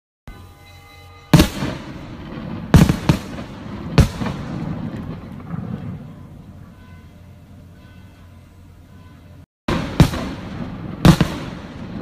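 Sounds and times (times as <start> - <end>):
faint steady tone: 0.3 - 2.6, 5.1 - 9.4
firework bangs with echo: 1.3 - 6.7, 9.7 - 12.0.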